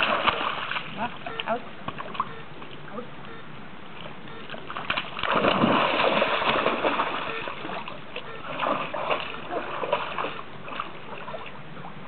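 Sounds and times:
dog splashing through water: 0.0 - 1.2, 4.5 - 11.5.

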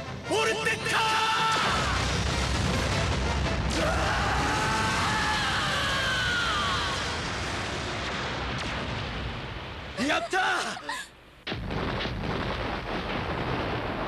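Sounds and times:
rumbling explosion with falling whine: 1.7 - 10.0, 11.4 - 14.0.

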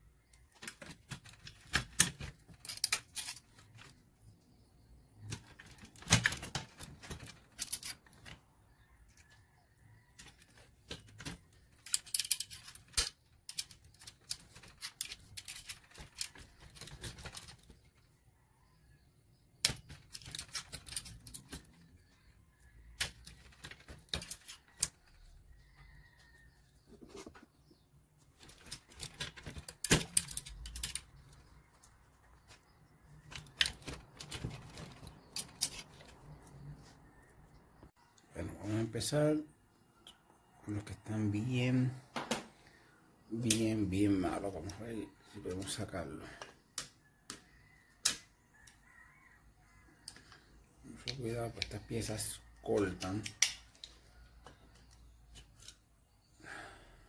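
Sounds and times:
metal hand tools clicking and scraping: 11.2 - 17.5, 28.4 - 31.4, 33.3 - 36.2.

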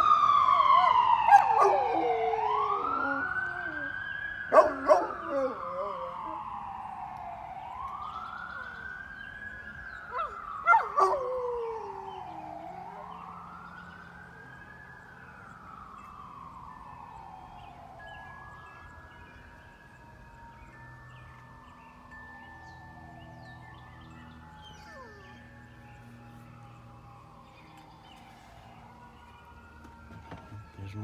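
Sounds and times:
emergency siren wailing: 0.0 - 31.0
dog howling: 0.6 - 6.6, 10.1 - 13.2, 24.6 - 25.8.

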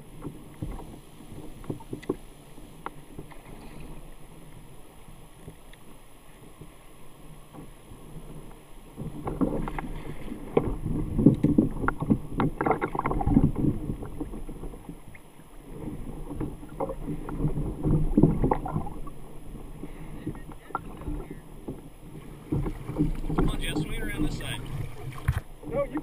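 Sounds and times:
knocks and rattles on kayak: 0.0 - 26.0
water splashing: 0.0 - 26.0.

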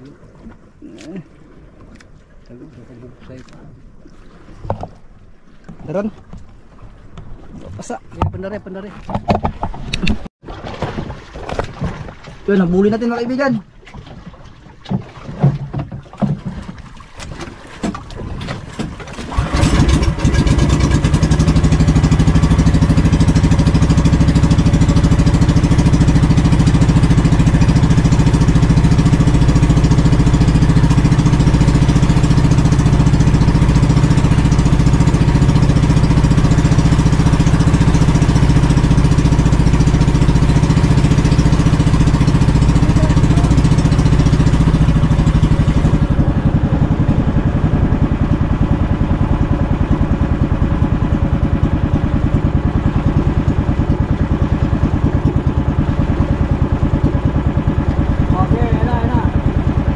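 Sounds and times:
boat engine starting and running: 0.0 - 59.9
knocks and clatters: 9.0 - 12.4, 14.8 - 21.0.

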